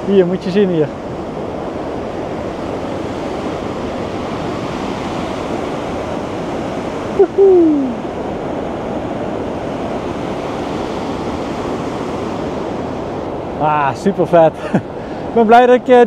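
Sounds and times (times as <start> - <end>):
stream rapids rushing: 0.0 - 10.1.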